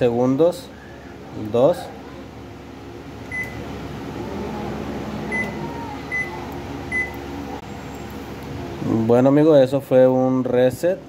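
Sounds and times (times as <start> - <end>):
microwave oven humming: 0.0 - 9.6
microwave high beeps: 3.3 - 3.6, 5.3 - 7.2.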